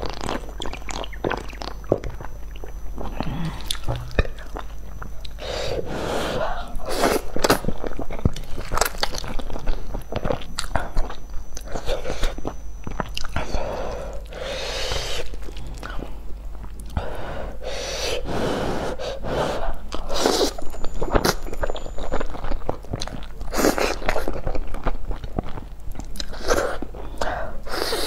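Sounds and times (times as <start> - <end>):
chewing noodles: 0.0 - 5.4, 6.8 - 13.5, 19.9 - 26.9.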